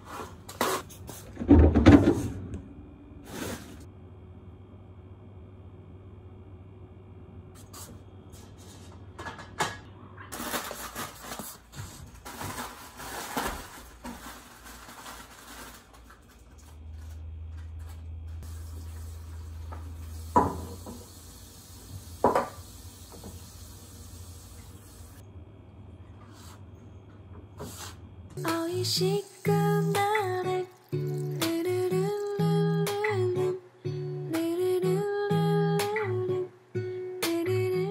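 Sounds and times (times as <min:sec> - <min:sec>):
steady low hum: 0:00.2 - 0:10.3, 0:22.8 - 0:36.7.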